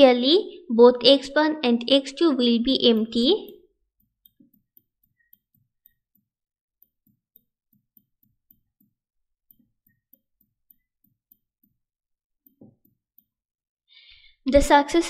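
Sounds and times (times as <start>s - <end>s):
stylus tapping on tablet: 2.7s - 13.4s.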